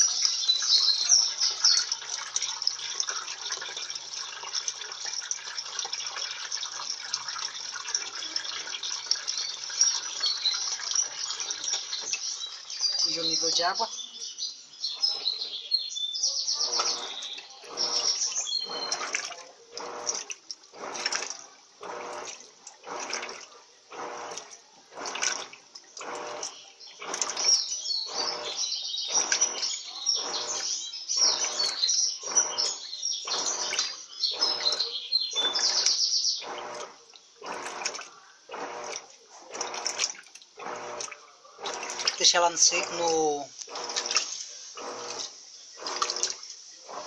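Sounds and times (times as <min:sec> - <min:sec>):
washing machine water swishing: 0:00.0 - 0:47.0.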